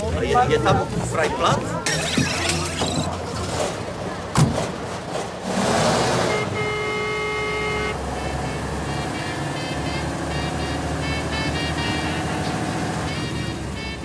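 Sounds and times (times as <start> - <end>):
vehicle noise rushing: 0.0 - 14.0
car horn: 6.1 - 14.0.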